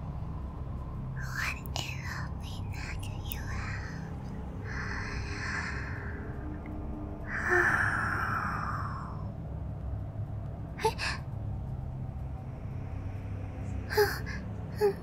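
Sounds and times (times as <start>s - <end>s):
low ambience rumble: 0.0s - 15.0s
woman's breathy sighs: 7.2s - 9.2s.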